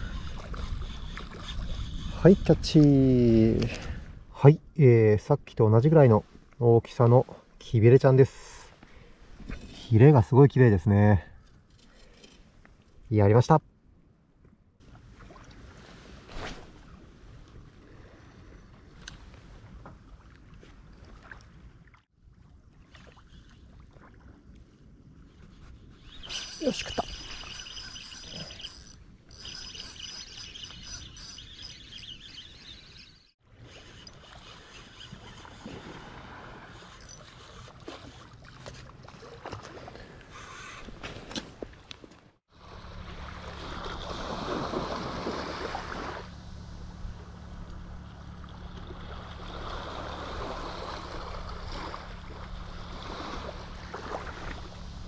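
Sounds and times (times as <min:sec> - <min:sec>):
rumble of wind and water: 0:00.0 - 0:31.2, 0:33.4 - 0:55.0
faint bird chirps: 0:26.0 - 0:35.7
steady low hum: 0:46.2 - 0:55.0.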